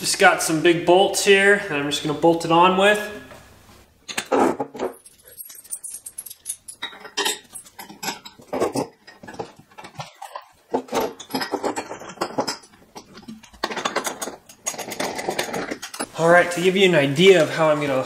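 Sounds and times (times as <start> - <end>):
metal bolts clinking and rattling: 4.1 - 16.1.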